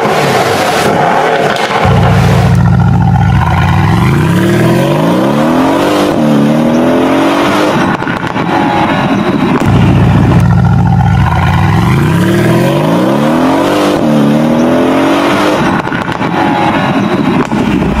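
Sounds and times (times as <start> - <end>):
car engine accelerating: 1.6 - 18.0.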